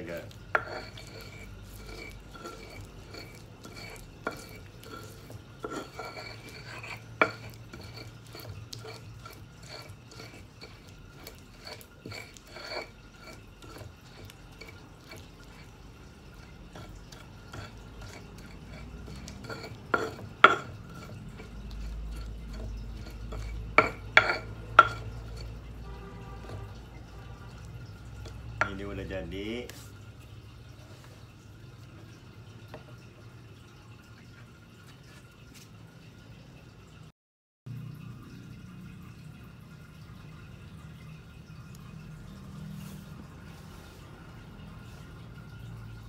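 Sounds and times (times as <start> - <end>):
stone pestle grinding in mortar: 0.0 - 30.0.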